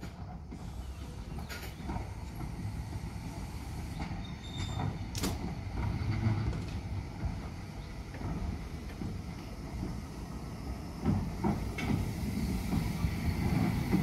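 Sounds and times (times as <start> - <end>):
steam locomotive rumbling: 0.0 - 14.0
clanks and creaks: 1.4 - 2.6, 4.0 - 7.5.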